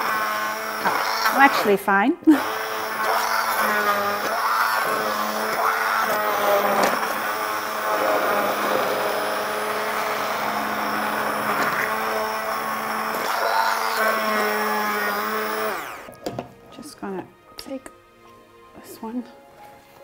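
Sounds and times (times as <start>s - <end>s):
stick blender motor hum: 0.0s - 16.2s
thick liquid churning: 2.4s - 16.1s.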